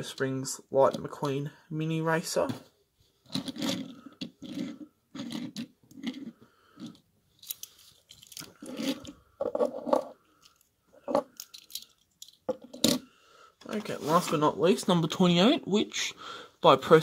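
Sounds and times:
toy cars rustling on wooden table: 3.2 - 14.4.

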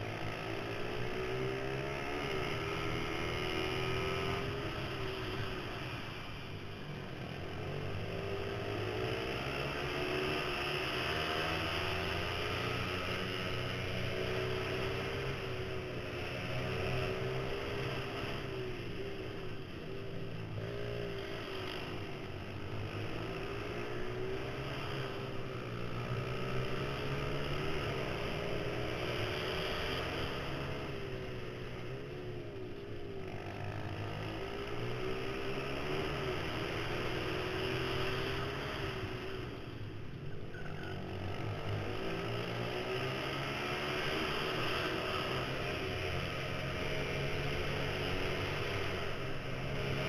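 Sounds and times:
small motorbike engine revving: 41.0 - 50.0.

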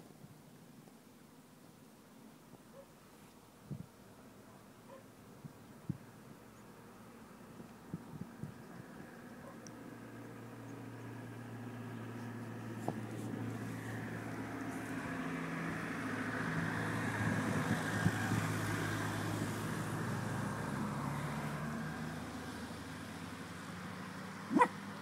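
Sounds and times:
vehicle engine driving past: 7.3 - 25.0.

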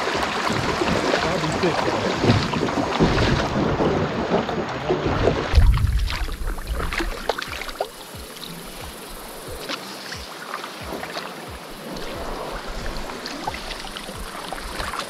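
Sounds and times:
water lapping and splashing: 0.0 - 15.0
soft low knocks against hull: 0.6 - 9.7.

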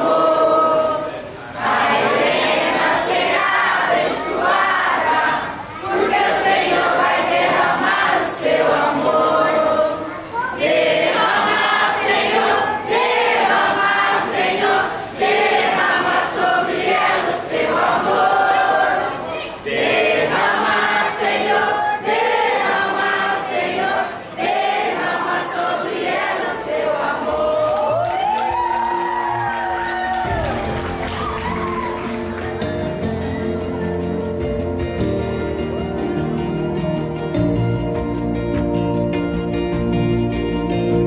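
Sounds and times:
group of people singing: 0.0 - 28.6.

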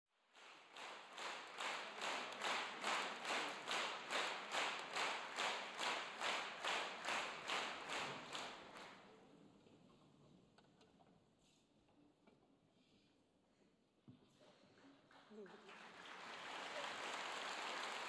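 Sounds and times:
audience clapping in unison: 0.2 - 9.2, 14.8 - 18.0.

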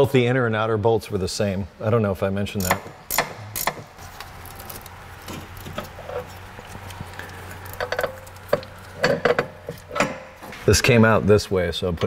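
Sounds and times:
steady low hum: 0.1 - 12.0
metal parts clicking and clinking: 2.6 - 7.0, 7.6 - 10.4.

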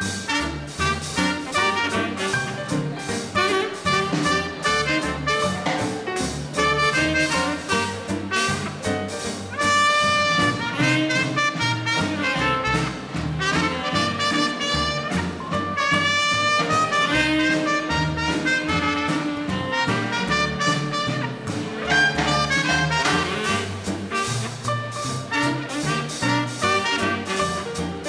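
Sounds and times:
swing rhythm section: 0.0 - 28.0
trumpet melody: 0.0 - 28.0
saxophone melody: 3.4 - 5.7, 9.6 - 28.0.

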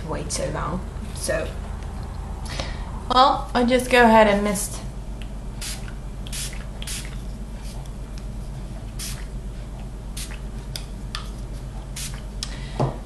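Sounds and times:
low electrical hum: 0.0 - 13.0
spray bottle hissing sprays: 5.6 - 7.8, 9.0 - 9.3, 12.0 - 12.2.

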